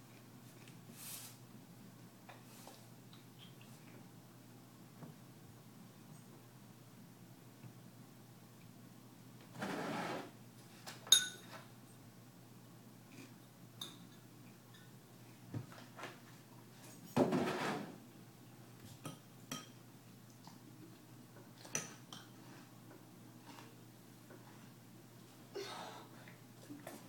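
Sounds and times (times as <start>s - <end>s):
rustling scraping: 9.5s - 10.3s
spoon clinking on ceramic bowl: 11.1s - 11.6s.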